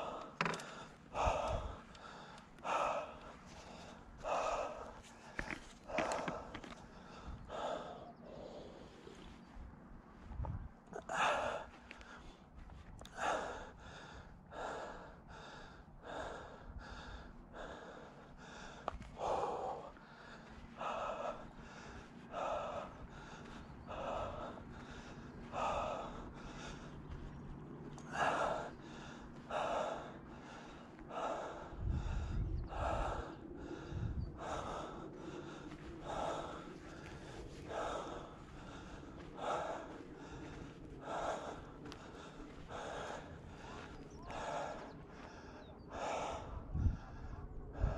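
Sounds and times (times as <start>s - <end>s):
man gasping for breath: 0.0s - 9.5s, 10.3s - 47.9s.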